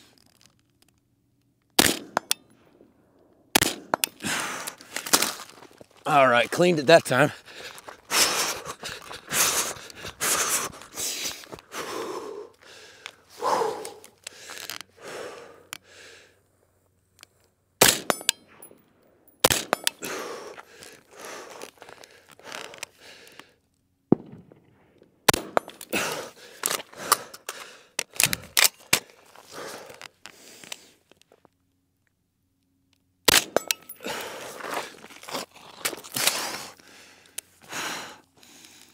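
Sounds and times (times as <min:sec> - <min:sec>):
rifle single shots: 0:01.8 - 0:02.4, 0:03.5 - 0:04.1, 0:17.8 - 0:18.8, 0:19.4 - 0:19.9, 0:24.1 - 0:25.8, 0:33.3 - 0:33.8
running footsteps on gravel: 0:04.2 - 0:14.8, 0:34.0 - 0:37.0.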